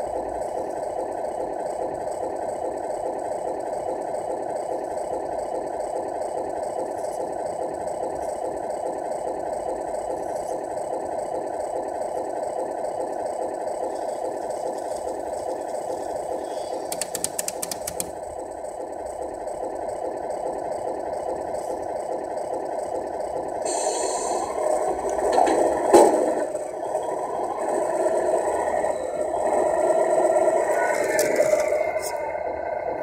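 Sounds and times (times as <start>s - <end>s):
diesel engine idling through small speaker: 0.0s - 33.0s
sharp clicks: 16.8s - 18.2s.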